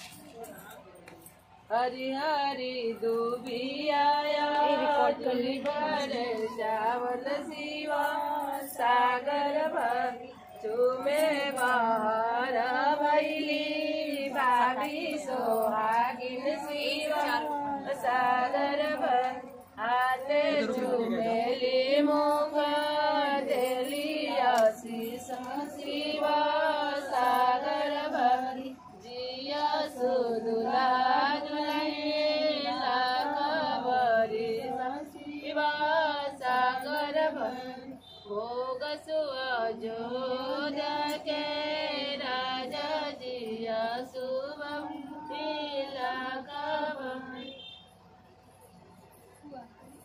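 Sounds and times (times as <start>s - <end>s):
women singing folk song: 1.7s - 47.7s.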